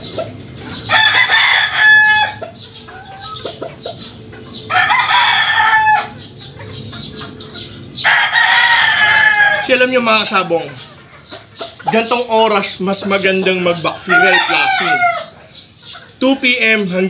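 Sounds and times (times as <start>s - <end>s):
faint chicken clucking: 0.0s - 17.0s
rooster crowing: 0.8s - 3.6s, 4.6s - 6.3s, 8.0s - 10.0s, 14.0s - 15.5s.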